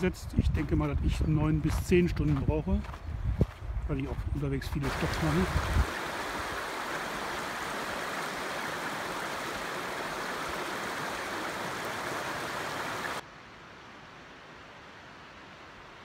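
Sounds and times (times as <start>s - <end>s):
river rushing over stones: 4.8s - 13.2s.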